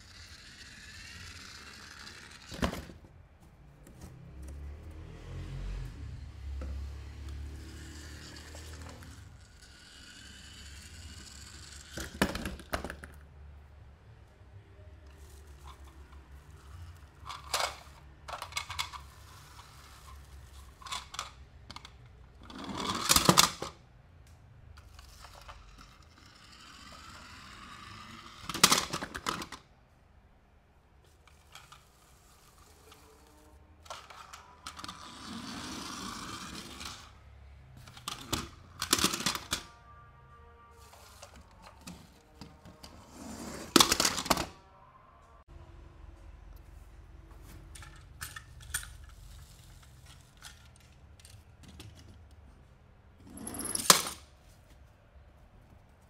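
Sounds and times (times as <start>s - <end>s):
toy packaging clicks and knocks: 11.8s - 13.2s, 47.7s - 52.2s.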